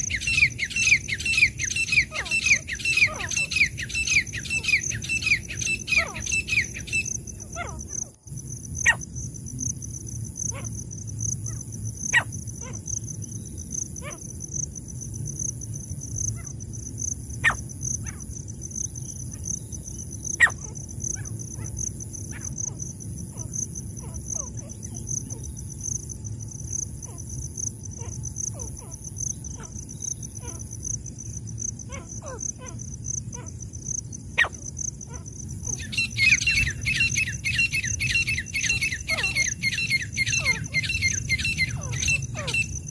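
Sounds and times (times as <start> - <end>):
francolin calls: 0.0 - 8.2, 17.4 - 18.3, 19.0 - 25.8, 27.0 - 33.6, 34.3 - 42.9
high insect trill: 0.0 - 42.9.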